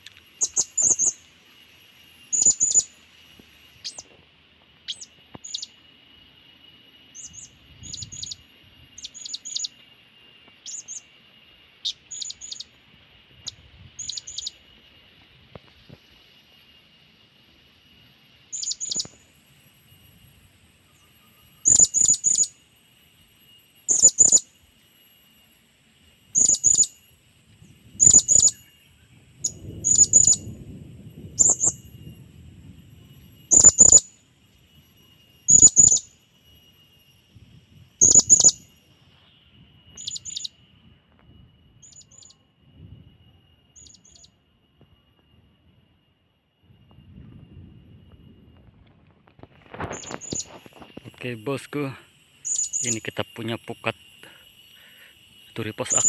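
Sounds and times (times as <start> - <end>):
faint steady high tone: 0.0 - 56.0
parrot high-pitched calls: 21.6 - 22.6, 23.9 - 24.4, 29.4 - 30.4, 33.5 - 34.1, 35.5 - 36.1, 38.0 - 38.6.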